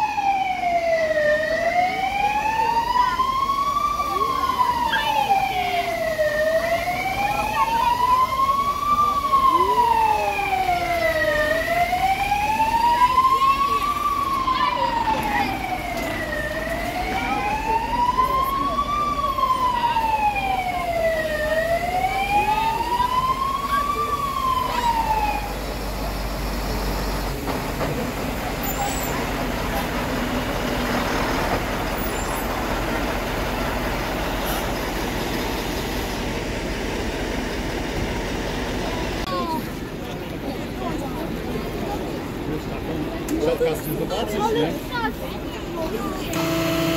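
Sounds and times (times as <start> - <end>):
fire engine siren wailing: 0.0 - 39.7, 46.2 - 46.9
steady background noise: 0.0 - 46.9
fainter second siren tone: 0.1 - 25.8, 46.3 - 46.9.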